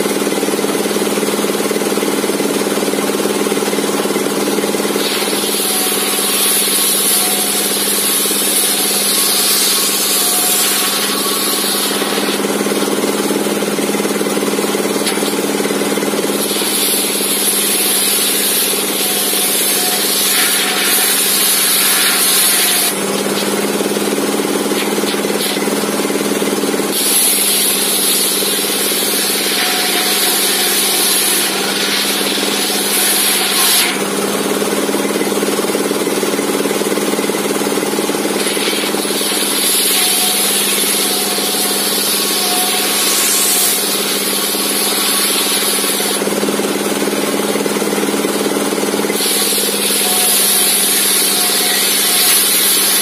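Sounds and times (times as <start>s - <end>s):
engine-driven mechanical drone: 0.0s - 53.0s
saw blade cutting hiss: 4.8s - 13.8s, 16.3s - 26.2s, 26.9s - 34.5s, 38.2s - 46.2s, 49.1s - 53.0s.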